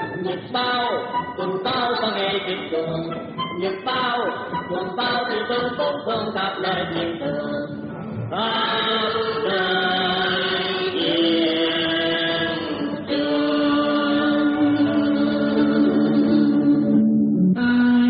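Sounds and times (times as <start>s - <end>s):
accompanying music: 0.0s - 18.0s
person singing long notes: 0.0s - 18.0s.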